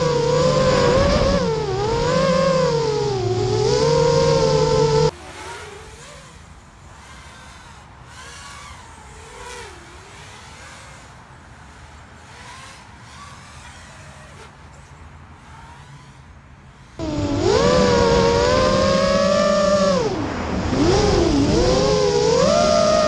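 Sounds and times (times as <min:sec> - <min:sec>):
low steady rumble: 0:00.0 - 0:05.1, 0:17.0 - 0:23.0
drone motors whining: 0:00.0 - 0:23.0.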